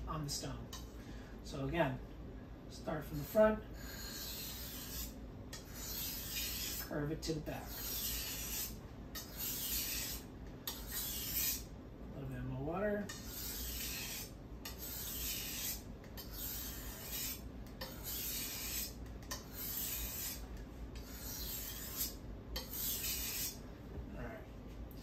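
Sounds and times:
knife rasping on whetstone: 0:03.1 - 0:06.9, 0:07.6 - 0:11.7, 0:13.1 - 0:23.6.

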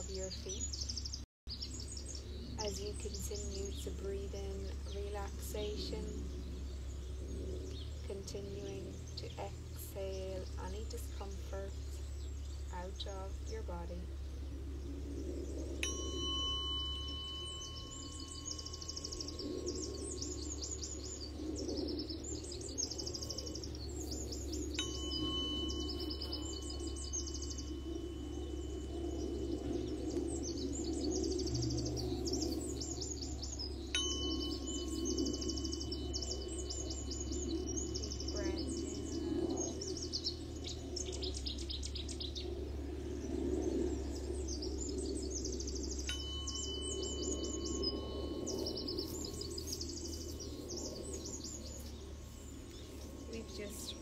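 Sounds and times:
birds trilling: 0:00.0 - 0:54.0
tuning fork ringing: 0:15.6 - 0:42.5, 0:44.4 - 0:54.0.

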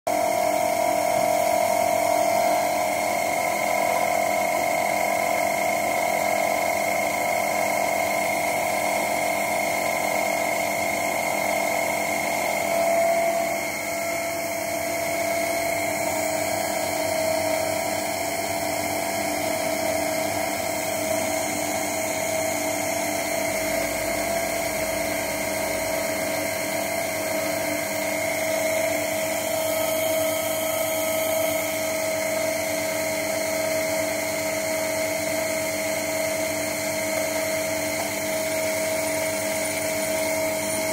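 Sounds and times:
motor driving lathe whining: 0:00.1 - 0:40.9.

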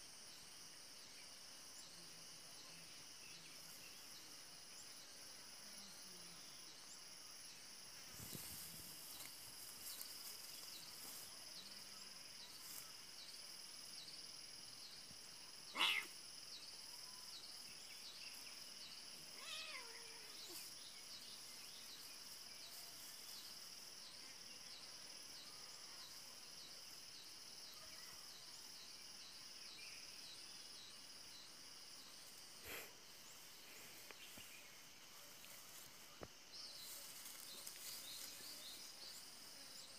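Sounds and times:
insects chirring: 0:00.0 - 0:39.9
cat crying: 0:15.8 - 0:16.1, 0:19.4 - 0:20.3.

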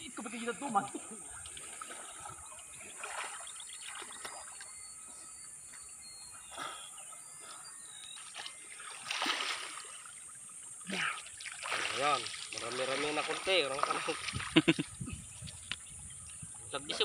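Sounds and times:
water splashing and sloshing: 0:00.2 - 0:17.0.

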